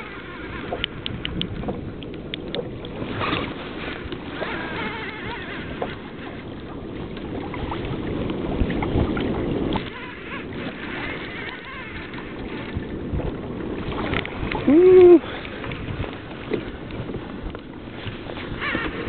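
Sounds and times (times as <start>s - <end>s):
water lapping against kayak hull: 0.0s - 19.0s
wind on microphone: 0.0s - 19.0s.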